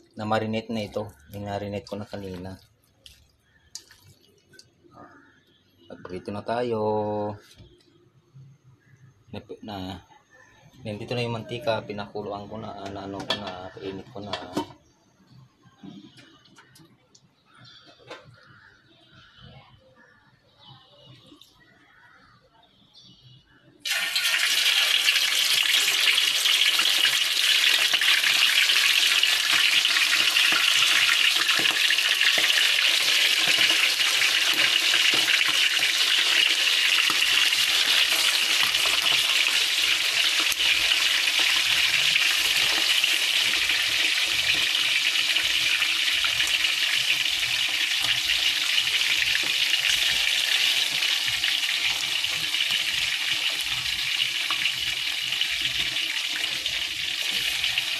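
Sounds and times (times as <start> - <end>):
chicken deep-frying in hot oil: 0.0 - 5.2, 10.9 - 14.8, 23.8 - 57.9.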